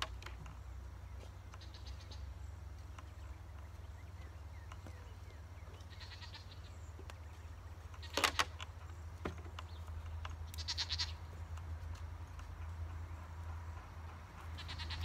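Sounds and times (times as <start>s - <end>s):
livestock bleating: 1.5s - 2.3s, 5.8s - 6.8s, 10.5s - 11.3s, 14.6s - 15.0s.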